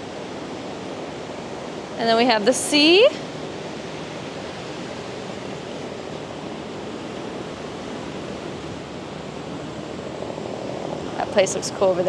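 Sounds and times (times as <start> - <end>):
ocean surf washing on shore: 0.0 - 12.0.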